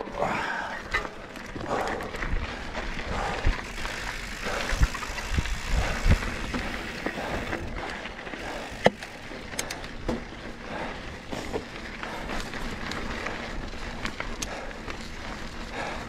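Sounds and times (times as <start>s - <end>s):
tyre and wind rumble: 0.0s - 16.0s
bike knocks and rattles: 3.6s - 7.7s, 8.4s - 14.7s.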